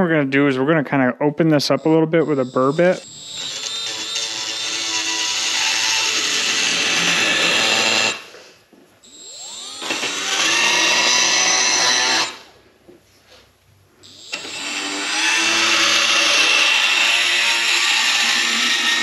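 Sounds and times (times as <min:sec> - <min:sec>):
rotary tool grinding whine: 0:01.8 - 0:08.4, 0:09.0 - 0:12.5, 0:14.0 - 0:19.0.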